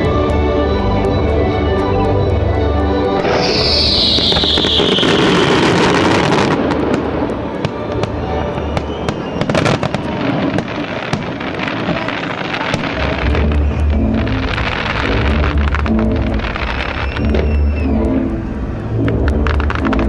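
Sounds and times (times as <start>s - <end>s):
music: 0.0s - 20.0s
firework pops and crackles: 3.1s - 20.0s
firework whistle falling in pitch: 3.2s - 7.0s, 7.7s - 11.2s, 12.4s - 18.4s.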